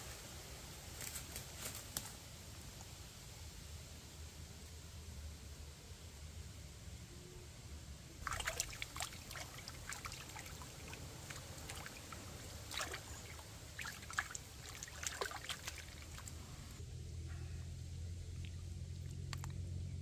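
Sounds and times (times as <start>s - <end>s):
water splashing as meat is washed: 8.2s - 16.6s.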